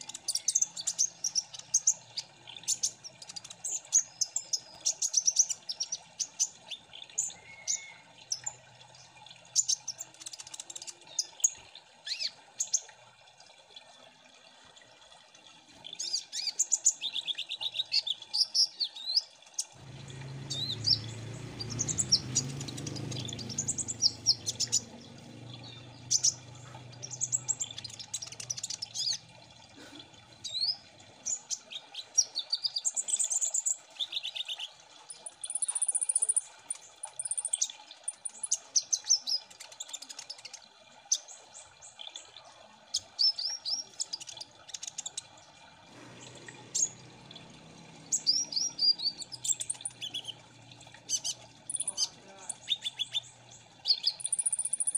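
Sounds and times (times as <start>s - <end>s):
birds chirping and trilling: 0.0s - 12.9s, 15.8s - 54.9s.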